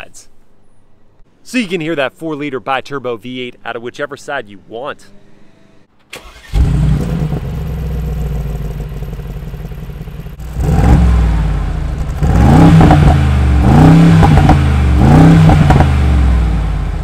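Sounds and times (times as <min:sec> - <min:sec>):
car engine idling and revving: 0:06.5 - 0:17.0.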